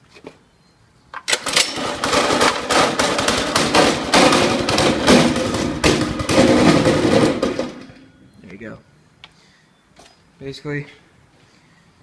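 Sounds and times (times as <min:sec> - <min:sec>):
go-kart engine starting and running: 0:01.3 - 0:08.1.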